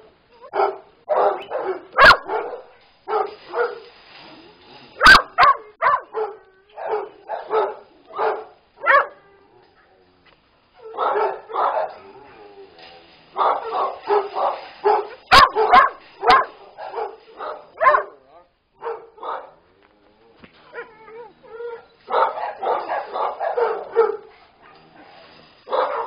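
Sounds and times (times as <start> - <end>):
dogs barking: 0.4 - 3.8, 5.0 - 9.2, 10.8 - 12.1, 13.3 - 18.2, 18.8 - 19.6, 22.1 - 24.8, 25.7 - 26.0.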